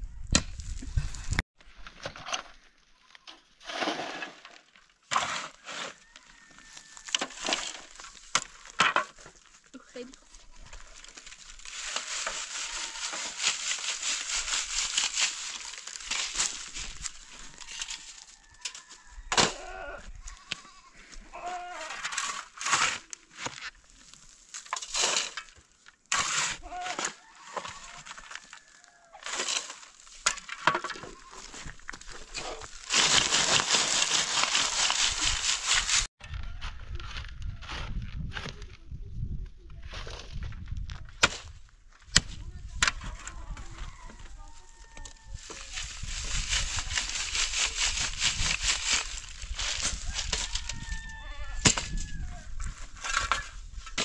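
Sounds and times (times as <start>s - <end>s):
shovel scraping stony ground: 0.3s - 36.1s, 39.8s - 54.0s
gravel rattling through sieve: 10.8s - 18.4s, 32.3s - 36.1s, 45.5s - 51.0s.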